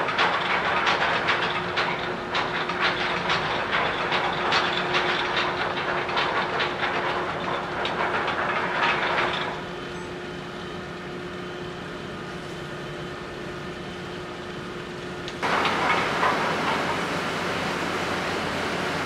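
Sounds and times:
ship engines droning: 8.0s - 19.0s
steady humming tones: 8.1s - 19.0s.

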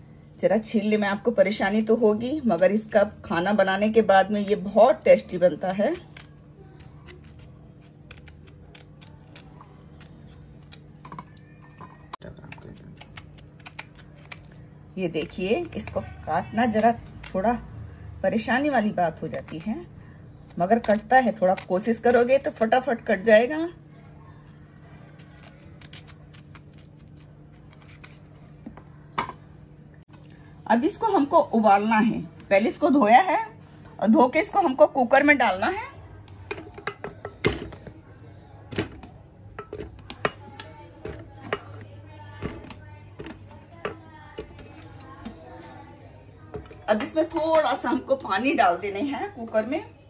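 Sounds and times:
knife cutting through fruit rind: 5.6s - 11.4s, 25.0s - 28.6s.

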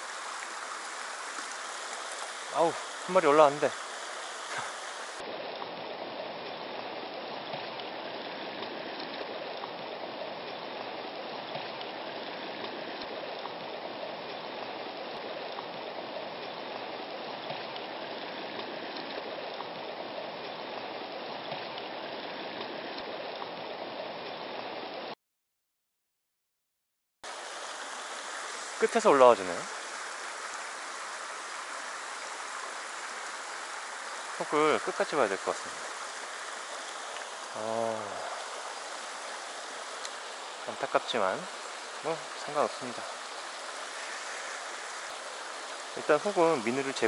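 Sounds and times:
stream running over rocks: 0.0s - 25.2s, 27.2s - 47.0s.

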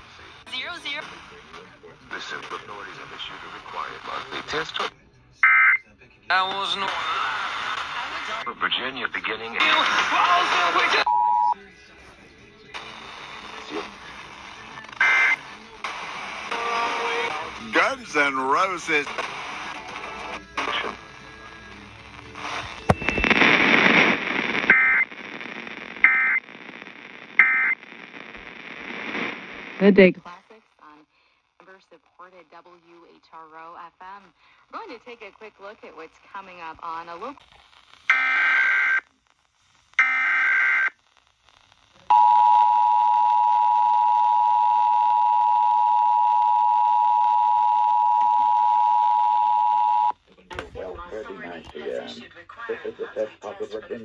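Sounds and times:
radio hiss: 0.0s - 5.1s, 6.2s - 40.9s, 49.9s - 54.0s
data tone bursts from radio: 12.7s - 18.0s, 22.1s - 30.2s, 42.1s - 50.2s
radio click: 22.4s - 30.1s.

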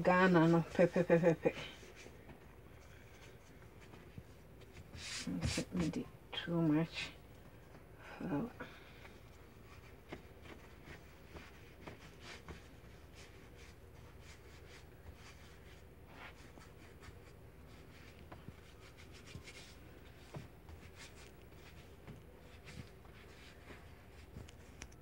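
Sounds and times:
hands rolling bread dough: 7.4s - 25.0s.

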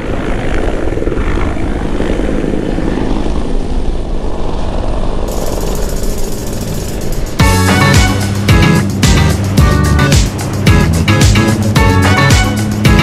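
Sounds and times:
helicopter flying overhead: 0.0s - 13.0s
downwash rushing over water: 5.3s - 13.0s.

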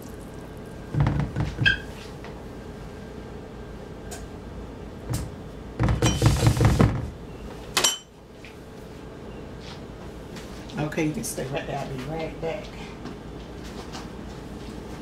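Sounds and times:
utensils and dishes clattering: 7.8s - 8.1s.

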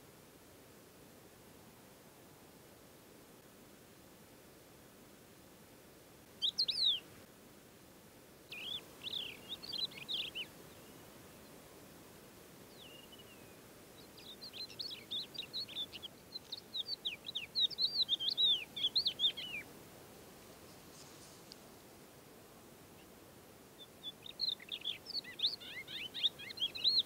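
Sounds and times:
lark singing: 6.4s - 7.0s, 8.5s - 10.9s, 12.7s - 19.7s, 23.8s - 27.0s.

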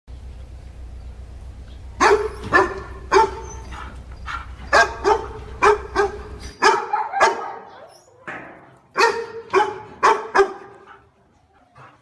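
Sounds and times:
low steady hum: 0.1s - 6.6s
dog barking: 2.0s - 7.9s, 9.0s - 11.0s.

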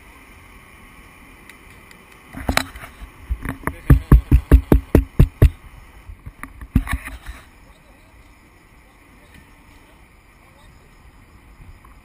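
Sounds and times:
steady low hiss: 0.0s - 12.0s
rapid heavy thumps: 3.3s - 5.6s.

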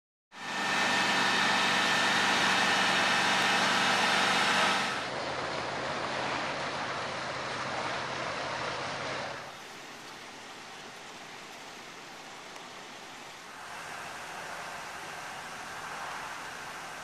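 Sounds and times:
fire engine droning hum: 0.4s - 9.5s, 13.5s - 17.0s
broad rushing noise: 0.4s - 9.7s.

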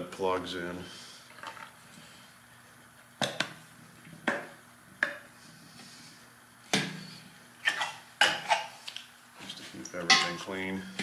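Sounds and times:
metal cups clinking: 10.0s - 10.4s.

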